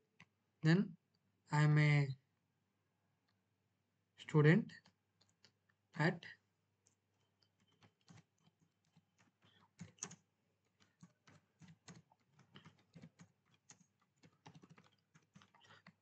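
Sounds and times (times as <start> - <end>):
typing on computer keyboard: 7.2 - 16.0.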